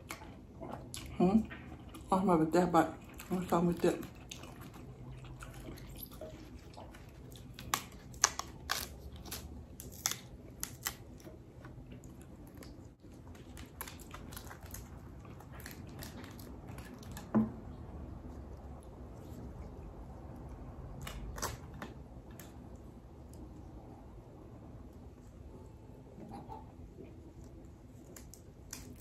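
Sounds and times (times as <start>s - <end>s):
crispy crepe crackling: 0.0s - 17.4s, 27.2s - 29.0s.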